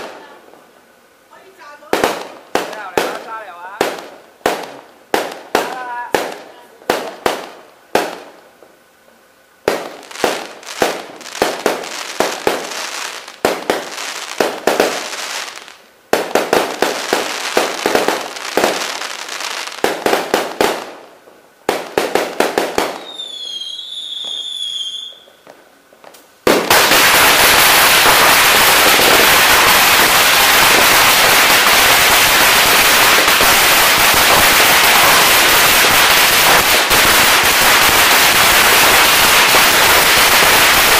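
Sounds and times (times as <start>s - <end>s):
aerial fireworks bursting: 0.0s - 0.6s, 1.3s - 8.7s, 9.6s - 40.9s
string of firecrackers crackling: 0.0s - 0.7s, 1.3s - 8.8s, 9.6s - 40.9s
firework whistle: 22.8s - 25.5s, 26.7s - 40.9s.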